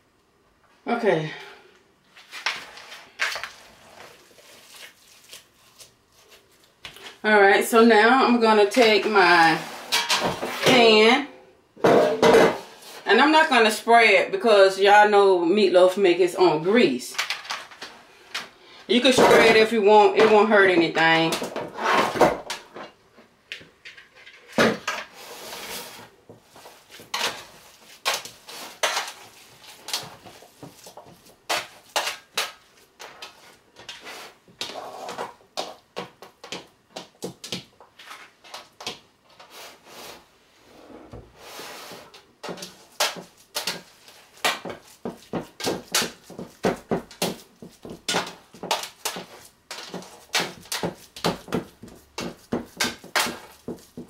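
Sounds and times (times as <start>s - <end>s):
hands patting meat mixture: 3.3s - 7.0s, 42.5s - 54.0s.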